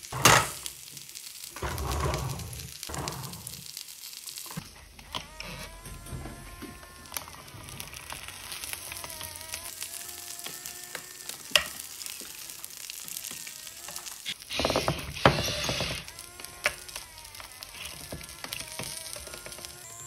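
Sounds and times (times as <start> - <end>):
food sizzling in a pan: 0.0 - 20.0
small electric motors whining: 1.5 - 3.7, 4.3 - 20.0
plastic bucket scraping food: 1.6 - 3.6, 14.3 - 16.8.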